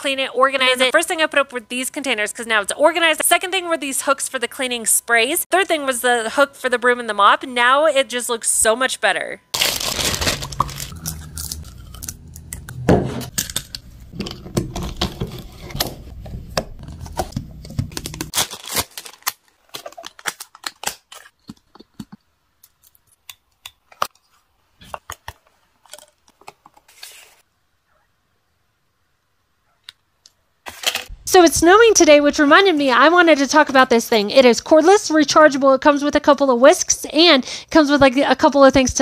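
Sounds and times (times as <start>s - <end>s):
plastic packaging crinkling: 9.5s - 12.6s, 16.8s - 21.4s.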